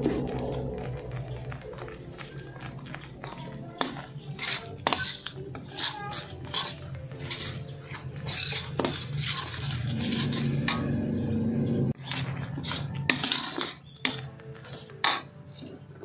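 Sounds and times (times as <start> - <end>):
metal spoon scraping a wok: 3.2 - 11.4, 12.0 - 16.0.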